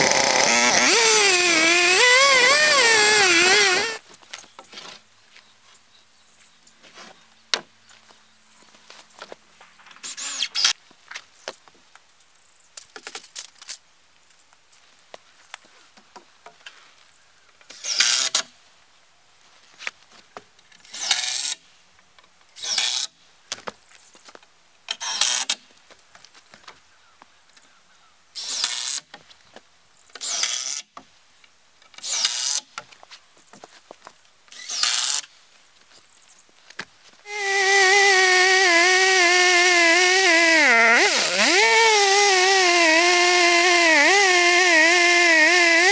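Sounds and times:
chainsaw cutting board: 0.0 - 4.0, 10.0 - 10.8, 34.6 - 35.3, 37.3 - 45.9
cordless drill whirring: 0.0 - 4.0, 10.0 - 10.8, 37.3 - 45.9.

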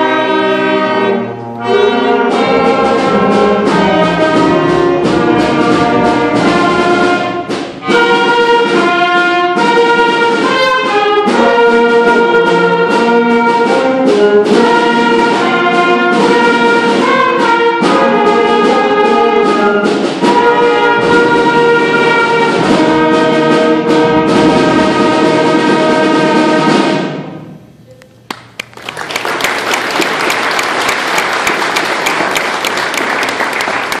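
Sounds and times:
concert band playing chords: 0.0 - 34.0
audience applauding: 28.3 - 34.0.

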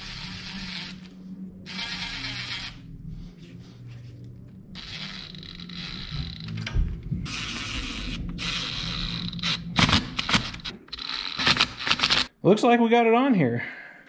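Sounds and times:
cordless driver running: 0.0 - 2.8, 4.8 - 6.5, 7.3 - 12.3.

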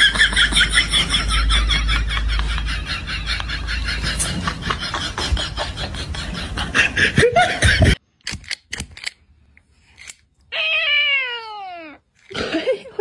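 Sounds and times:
cat meowing: 10.5 - 12.0.

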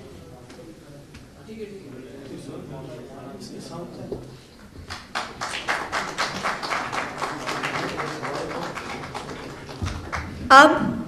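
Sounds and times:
people applauding: 4.8 - 10.5.

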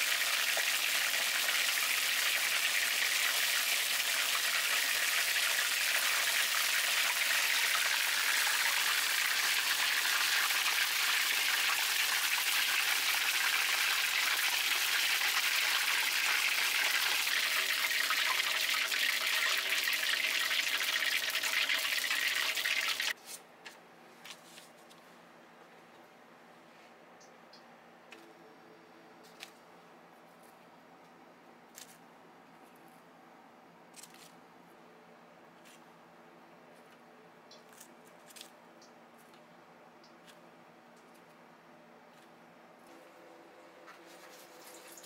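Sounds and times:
deep-frying in hot oil: 0.0 - 23.2.

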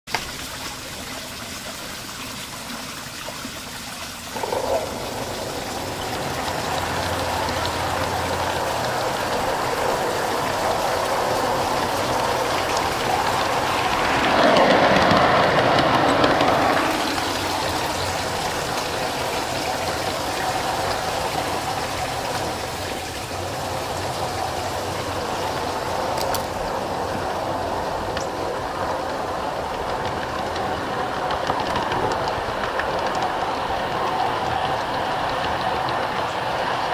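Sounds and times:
model train wheels rumbling: 4.3 - 36.9.

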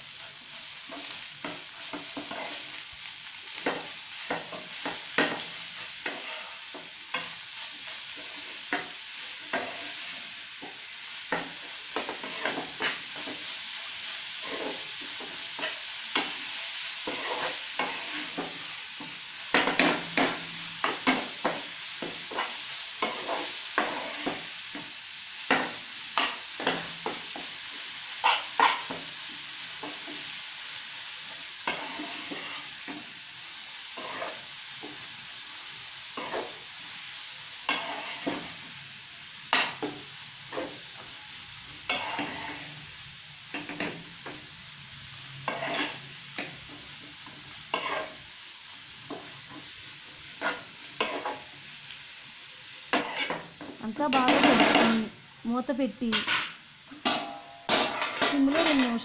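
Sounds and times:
greens sizzling in oil: 0.0 - 59.0
spatula scraping against pan: 0.2 - 2.8, 3.5 - 27.5, 28.2 - 29.0, 31.3 - 33.2, 33.8 - 35.1, 36.1 - 36.7, 37.6 - 38.6, 41.8 - 42.8, 45.3 - 48.3, 49.1 - 51.5, 52.9 - 55.0, 56.1 - 59.0.

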